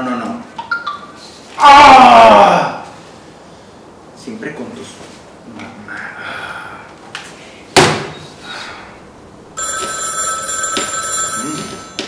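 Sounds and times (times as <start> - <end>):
sharp thump: 7.8 - 8.1
mobile phone ringtone: 9.6 - 12.0.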